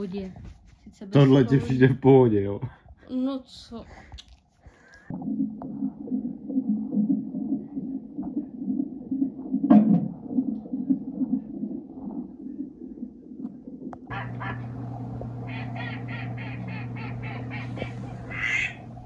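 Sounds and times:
fetal heartbeat pulsing whoosh: 5.1 - 19.0.

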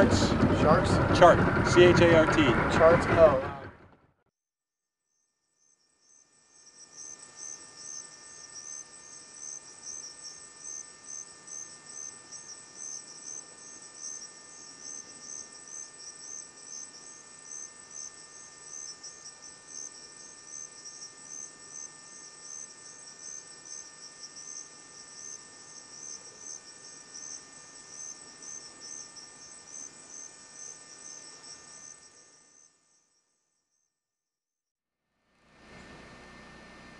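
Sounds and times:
high insect trills: 5.1 - 34.0
insects chirping: 5.2 - 33.9.

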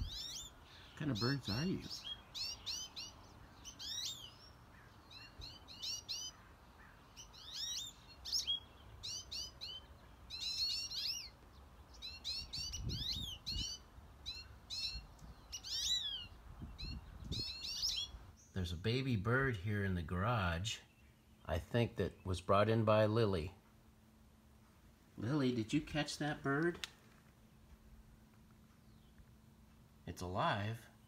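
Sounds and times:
finches chirping: 0.0 - 18.6.

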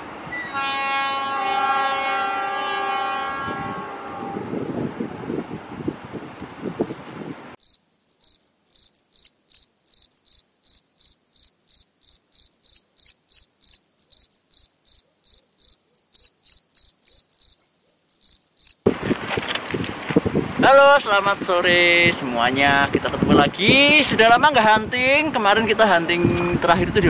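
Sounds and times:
outdoor ambience: 0.0 - 20.6
crickets chirping: 7.6 - 18.8.

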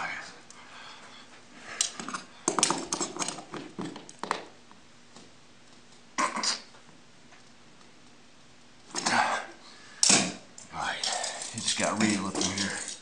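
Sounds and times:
pliers clicking and scraping on metal: 11.0 - 13.0.

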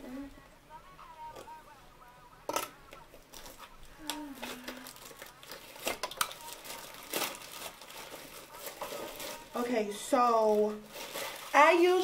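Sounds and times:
plastic packaging crinkling: 3.2 - 12.0.

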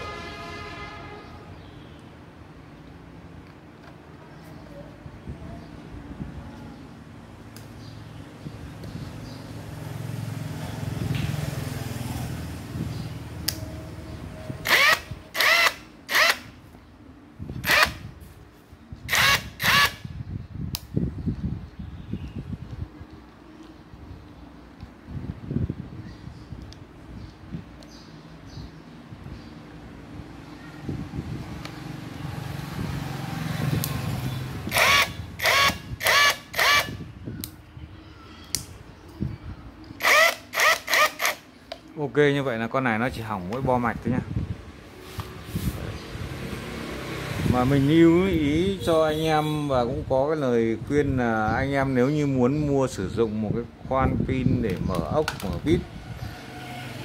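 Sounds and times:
impact wrench motor whine: 14.6 - 16.5, 17.6 - 18.0, 19.1 - 20.0, 34.7 - 37.0, 40.0 - 41.4.

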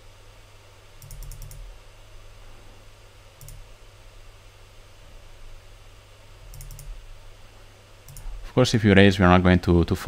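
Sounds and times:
computer mouse clicking: 1.0 - 1.7, 3.4 - 3.7, 6.5 - 7.0, 8.1 - 8.3.

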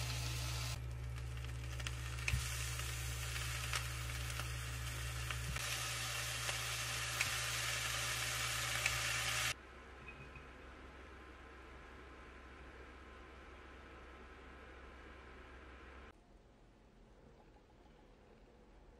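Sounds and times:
steak sizzling in a frying pan: 0.0 - 9.6
low steady hum: 0.0 - 18.9
pops and crackles: 0.8 - 5.6.

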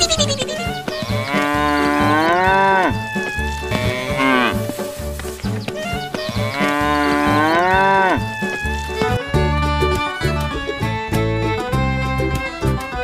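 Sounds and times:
cattle mooing: 1.0 - 3.0, 3.6 - 4.7, 6.3 - 8.3.

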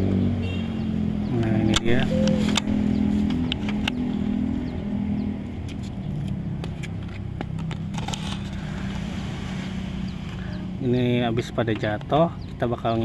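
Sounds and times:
engine running: 0.9 - 10.9.

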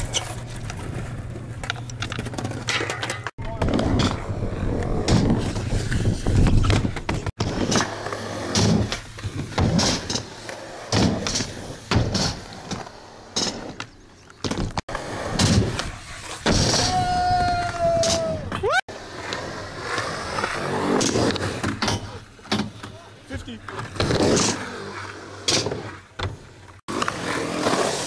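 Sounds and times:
skateboard wheels rolling on concrete: 0.0 - 28.0
skateboard tail pops and landings: 14.4 - 17.1.

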